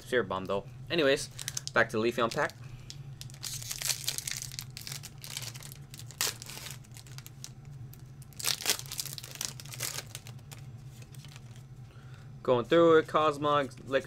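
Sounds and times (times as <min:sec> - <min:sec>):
steady low hum: 0:00.0 - 0:14.0
foil wrapper crinkling and tearing: 0:01.2 - 0:11.7.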